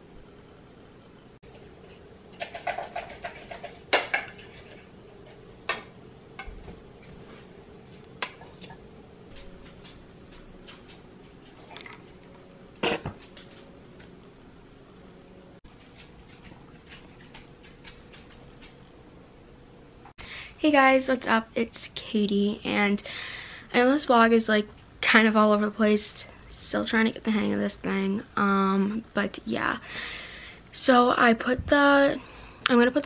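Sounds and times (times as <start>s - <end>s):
dishes and utensils clinking: 1.5s - 6.6s.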